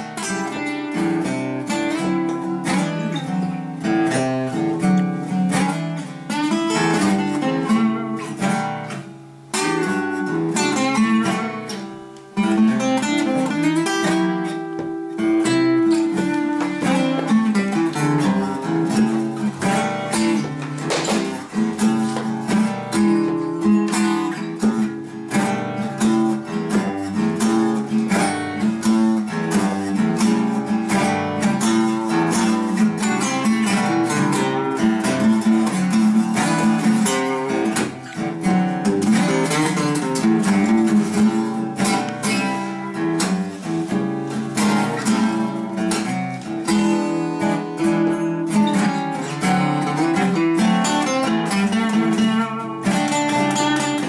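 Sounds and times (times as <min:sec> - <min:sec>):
acoustic guitars strumming: 0:00.0 - 0:54.0.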